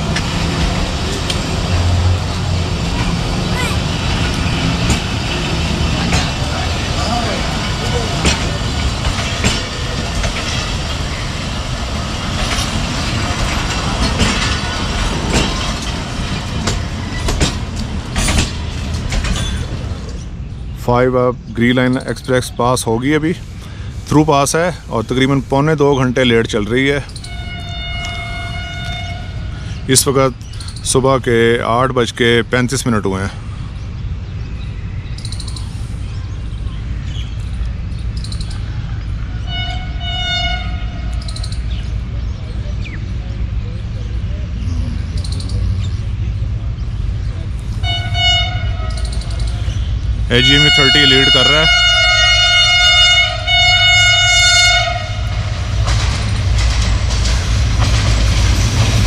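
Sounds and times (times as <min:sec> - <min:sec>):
wheels clacking over rail joints: 0:00.0 - 0:20.4, 0:36.6 - 0:59.0
train coaches rumbling: 0:00.0 - 0:59.0
diesel locomotive horn blast: 0:27.2 - 0:29.8, 0:39.3 - 0:41.3, 0:47.8 - 0:49.2, 0:50.3 - 0:55.7.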